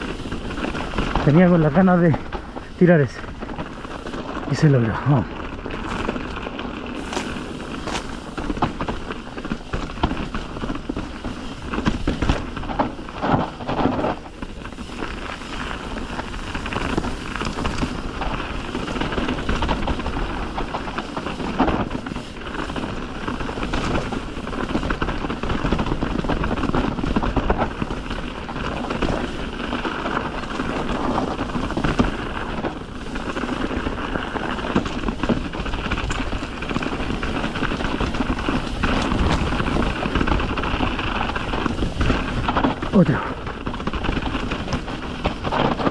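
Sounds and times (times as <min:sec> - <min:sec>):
bike tyres rolling on dirt: 0:00.0 - 0:45.9
bike knocks and rattles: 0:03.2 - 0:45.9.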